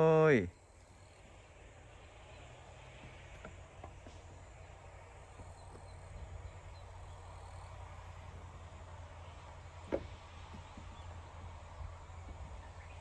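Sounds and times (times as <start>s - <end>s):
low background rumble: 0.0s - 13.0s
hoof knocking on wooden plank: 9.8s - 11.0s.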